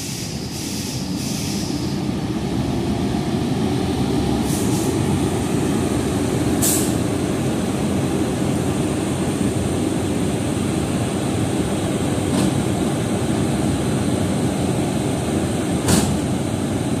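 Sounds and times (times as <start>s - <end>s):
compressed air hiss: 0.0s - 2.1s, 4.4s - 5.1s, 6.6s - 7.0s
locomotive cooling blowers droning: 1.9s - 17.0s.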